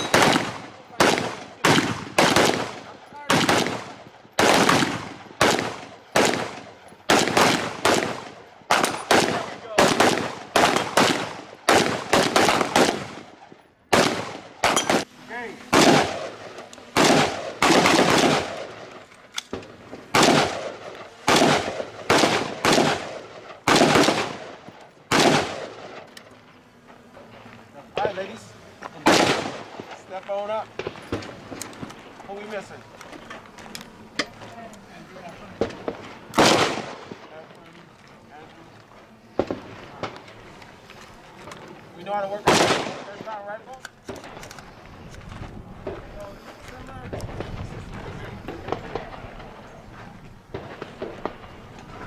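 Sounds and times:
overlapping gunshots: 0:00.0 - 0:26.2, 0:27.9 - 0:32.8, 0:35.2 - 0:37.5, 0:39.3 - 0:40.4, 0:42.2 - 0:43.6, 0:47.0 - 0:49.8, 0:50.4 - 0:52.0.

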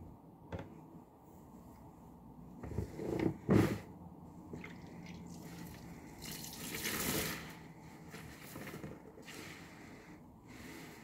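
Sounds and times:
water pouring and dripping: 0:04.5 - 0:09.4
sponge squelching in soapy water: 0:04.5 - 0:10.0.

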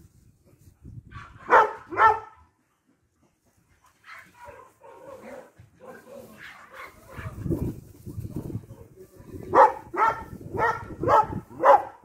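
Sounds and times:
dog barking: 0:01.2 - 0:02.4, 0:04.0 - 0:07.5, 0:09.5 - 0:12.0.

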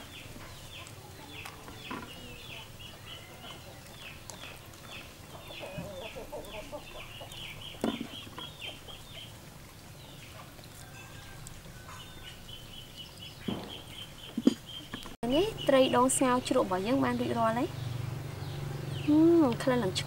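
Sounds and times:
chickens clucking: 0:00.0 - 0:17.2
sharp thumps: 0:13.4 - 0:15.1.

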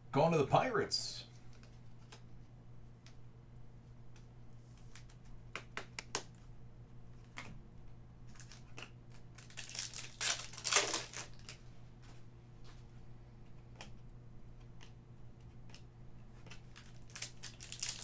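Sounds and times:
trading cards clicking and tapping: 0:04.1 - 0:06.4
foil wrapper crinkling and tearing: 0:08.3 - 0:11.6, 0:16.4 - 0:18.0.

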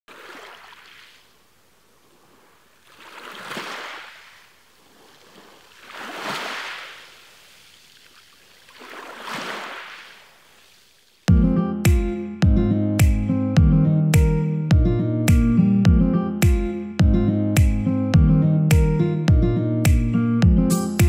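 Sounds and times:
small waves washing onto beach: 0:00.1 - 0:11.3.

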